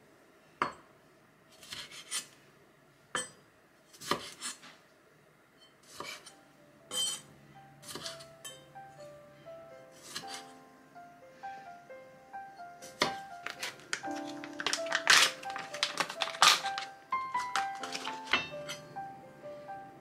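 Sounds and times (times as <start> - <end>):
knife slicing scrapes: 1.5 - 2.3, 3.9 - 4.7, 5.8 - 6.3, 10.0 - 10.5
soft background music: 5.9 - 20.0.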